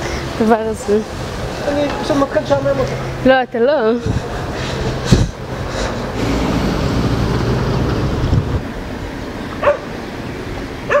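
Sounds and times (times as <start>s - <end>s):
steady low rumble: 2.8s - 9.4s
dog yelping: 9.6s - 9.8s.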